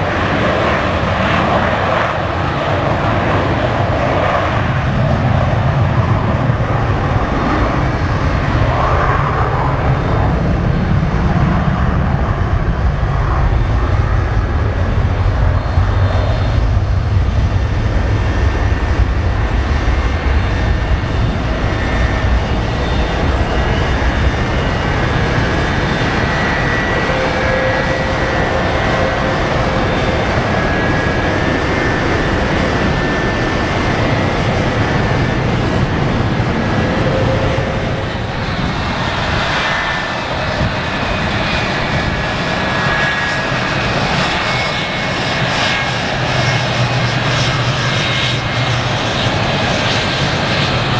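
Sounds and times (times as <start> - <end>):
jet airliner taking off: 0.0 - 50.9.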